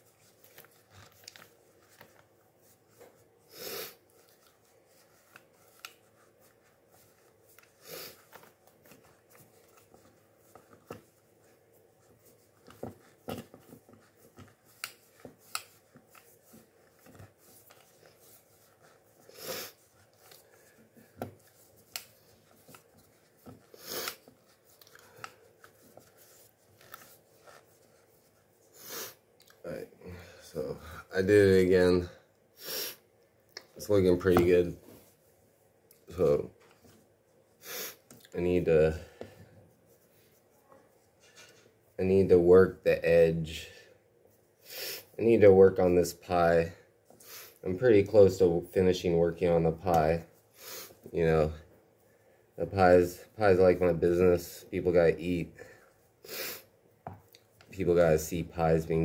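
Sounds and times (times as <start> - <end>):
fingers rubbing dough: 0.0 - 28.7.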